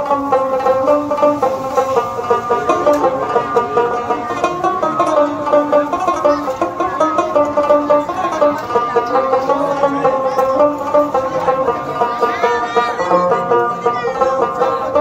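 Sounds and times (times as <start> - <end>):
plucked string instrumental music: 0.0 - 15.0.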